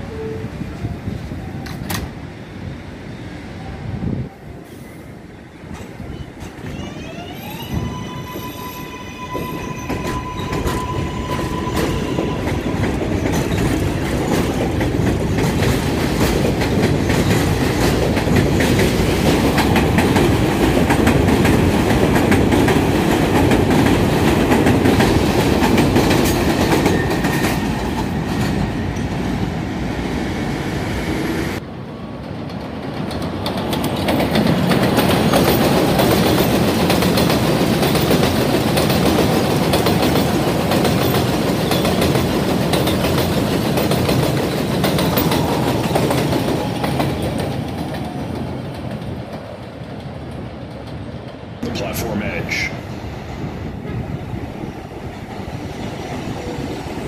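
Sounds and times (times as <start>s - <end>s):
distant train: 0.0s - 57.0s
train wheels clattering on track: 5.6s - 6.8s, 9.2s - 29.6s, 32.2s - 51.7s.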